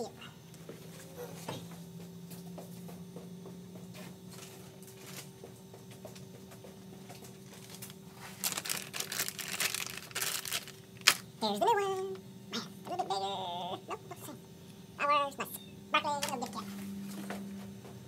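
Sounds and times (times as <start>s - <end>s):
faint steady hum: 0.0s - 18.0s
packaging crinkling: 7.4s - 11.3s.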